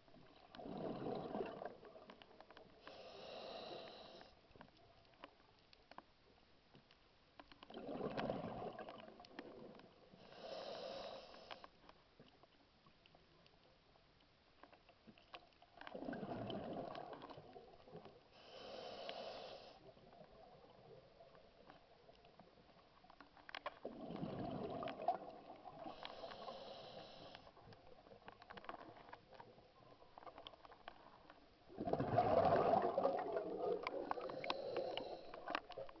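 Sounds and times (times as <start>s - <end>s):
bubbling exhale underwater: 0.6s - 2.0s, 7.8s - 9.7s, 15.9s - 17.6s, 23.8s - 26.0s, 31.7s - 35.2s
regulator hiss on inhale: 2.8s - 4.6s, 10.1s - 11.9s, 18.3s - 20.2s, 25.8s - 27.8s, 33.9s - 36.0s.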